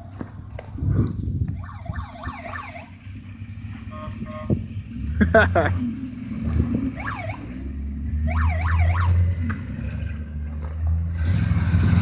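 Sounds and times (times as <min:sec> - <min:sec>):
pickup truck engine running: 0:01.2 - 0:12.0
tire squeal: 0:01.6 - 0:05.2, 0:05.8 - 0:10.5.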